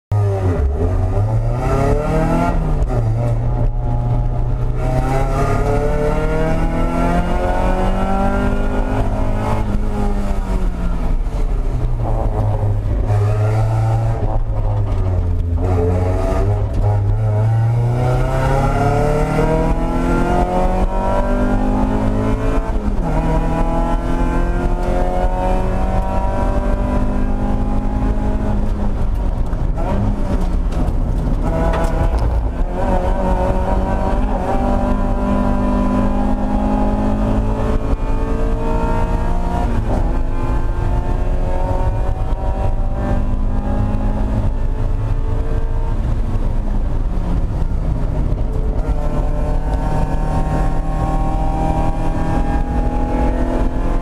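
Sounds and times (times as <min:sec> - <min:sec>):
race car engine revving: 0:00.2 - 0:54.0.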